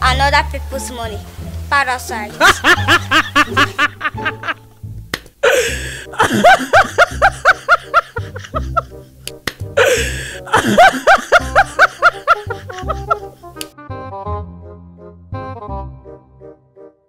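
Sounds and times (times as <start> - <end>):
background music: 0.0 - 17.0
canned laughter: 2.4 - 4.6, 5.4 - 9.0, 9.8 - 13.4.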